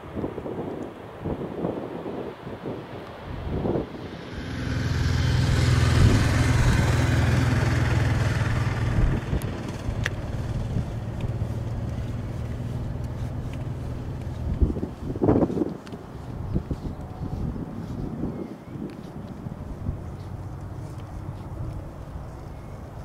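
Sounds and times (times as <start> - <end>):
jet engines roaring: 3.1 - 14.4.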